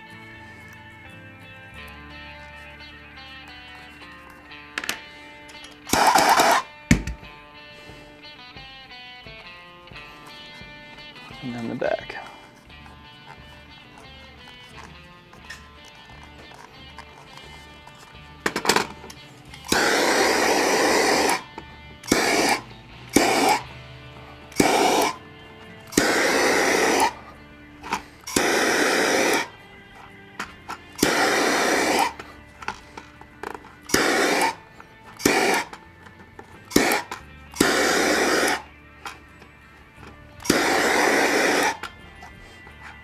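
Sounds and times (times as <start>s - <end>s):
torch clicks: 3.4s - 7.3s, 10.3s - 23.7s, 24.3s - 27.2s, 27.8s - 42.9s
torch flame hissing: 19.6s - 23.7s, 24.5s - 27.2s, 27.8s - 29.6s, 31.0s - 32.4s, 33.9s - 34.6s, 35.2s - 35.8s, 36.7s - 38.7s, 40.4s - 41.9s.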